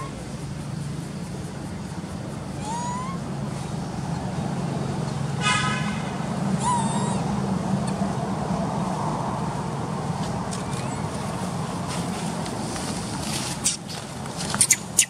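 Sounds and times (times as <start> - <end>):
horn toot: 5.4 - 6.2.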